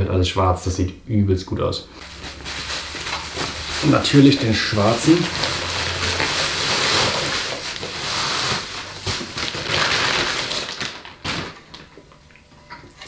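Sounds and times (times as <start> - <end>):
bubble wrap rustling: 1.9 - 12.1.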